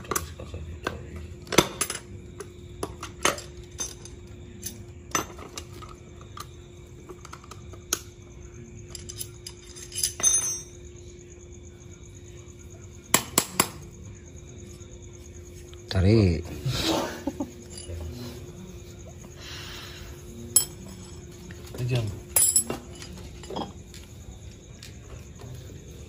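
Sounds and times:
faint steady hum: 0.0 - 26.0
metal tools clinking: 1.4 - 2.2, 2.8 - 7.7, 8.8 - 10.9, 16.9 - 19.2, 20.1 - 25.3.

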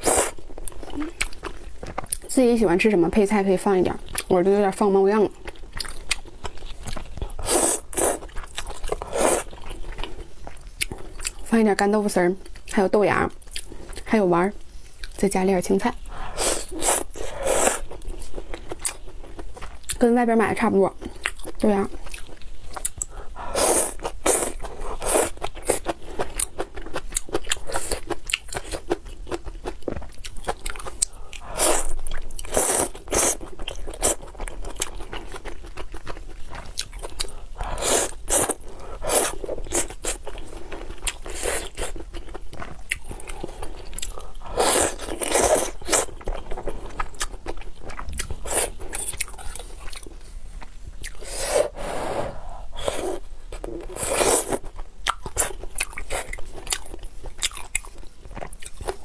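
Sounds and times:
chewing and mouth noises: 0.0 - 2.3, 5.3 - 11.5, 21.0 - 51.5, 52.7 - 59.0.

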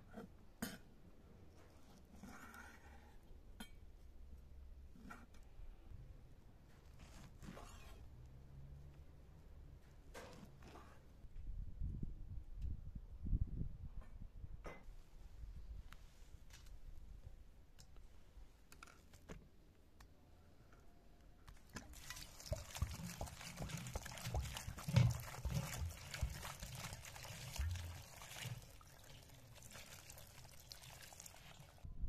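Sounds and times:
water splashing into colander: 21.7 - 31.8.

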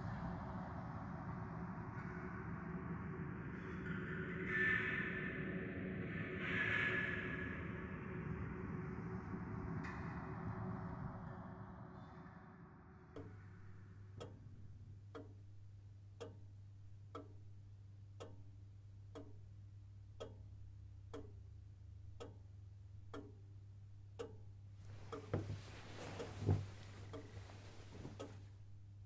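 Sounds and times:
low steady hum: 13.1 - 29.0
clock ticking: 15.1 - 19.5, 20.2 - 20.5, 21.1 - 21.4, 22.1 - 22.5, 23.1 - 28.4
soft knocks: 24.9 - 28.4.

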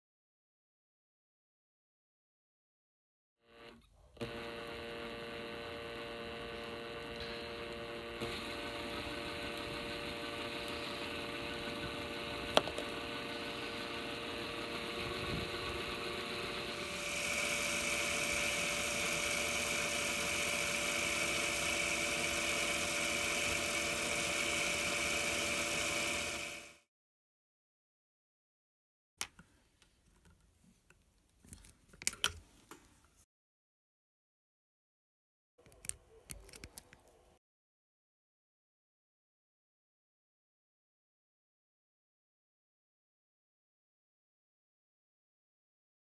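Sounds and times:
electric drill motor running: 3.5 - 26.9.

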